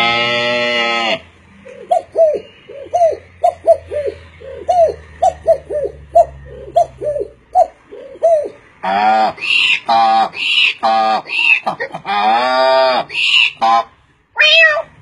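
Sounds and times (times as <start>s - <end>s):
man imitating pigeon cooing: 1.7s - 9.4s.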